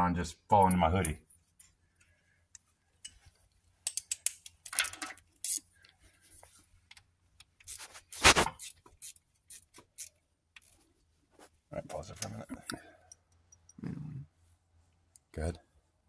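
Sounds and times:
metallic clicks and scrapes of tools: 0:00.6 - 0:06.0, 0:06.9 - 0:10.9, 0:12.0 - 0:13.8.

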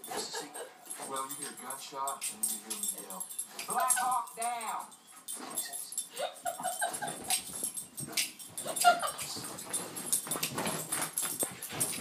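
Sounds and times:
paws thumping and scuffing: 0:06.8 - 0:12.0.

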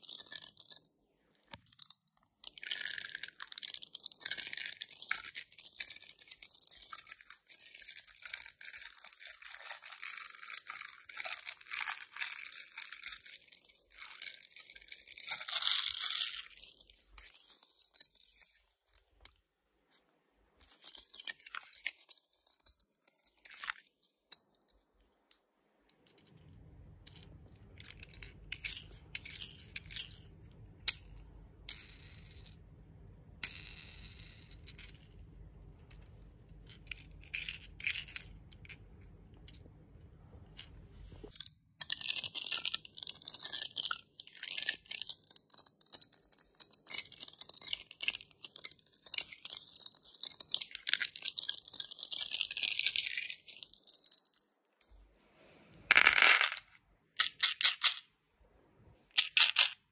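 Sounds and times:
candy wrapper tearing: 0:01.6 - 0:18.1, 0:41.8 - 0:54.5.

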